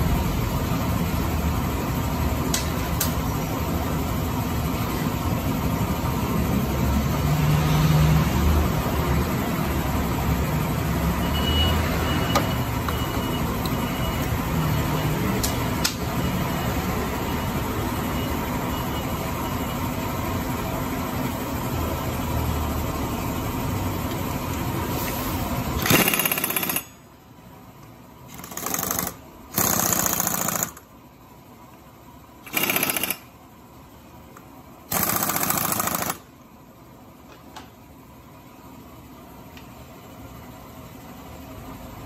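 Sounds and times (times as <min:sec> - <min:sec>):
steady mechanical hum: 0:00.0 - 0:42.0
pneumatic impact wrench hammering: 0:25.7 - 0:27.0, 0:28.3 - 0:30.9, 0:32.4 - 0:33.4, 0:34.8 - 0:36.3.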